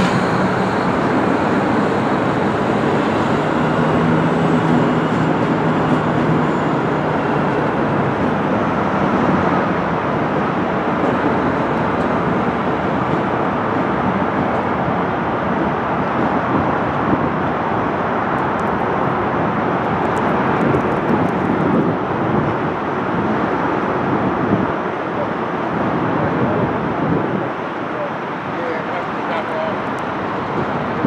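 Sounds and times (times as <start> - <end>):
train wheels rolling: 0.0 - 14.7
diesel locomotive engine: 0.0 - 31.0.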